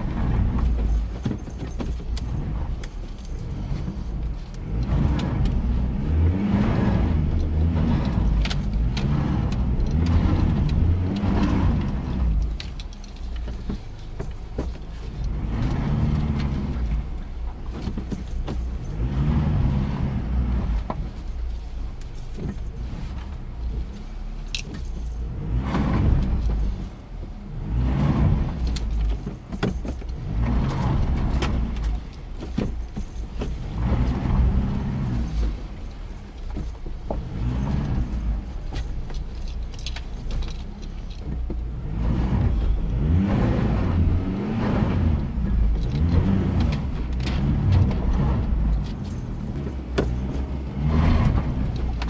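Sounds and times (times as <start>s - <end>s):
truck engine revving: 0.0s - 1.0s, 2.2s - 13.1s, 15.2s - 17.3s, 18.8s - 21.0s, 25.3s - 29.1s, 30.1s - 52.0s
tyres spinning in mud: 27.6s - 52.0s.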